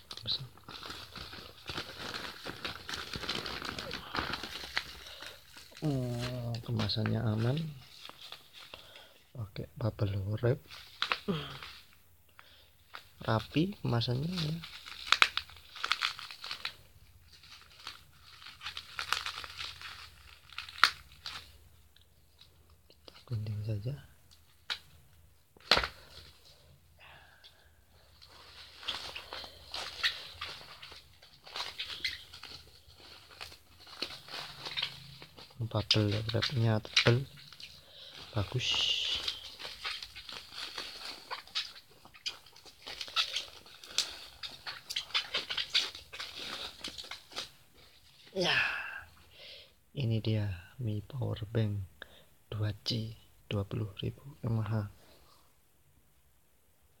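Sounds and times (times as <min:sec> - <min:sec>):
bubble wrap crackling: 0:00.0 - 0:49.3.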